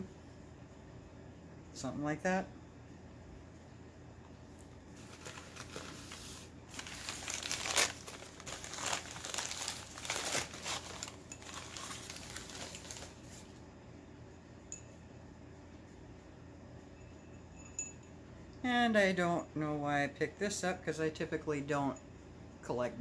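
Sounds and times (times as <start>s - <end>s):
packing wrap crumpling: 5.0s - 13.5s.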